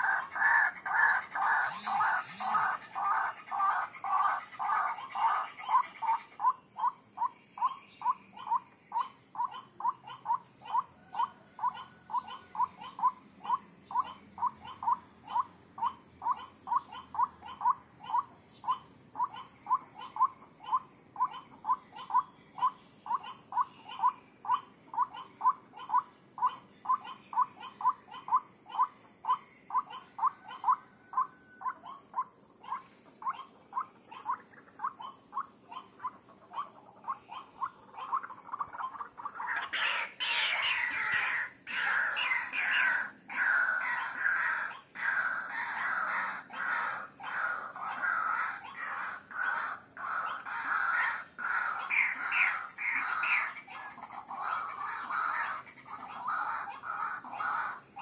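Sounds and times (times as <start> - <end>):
bird calling short repeated notes: 1.4 - 3.2.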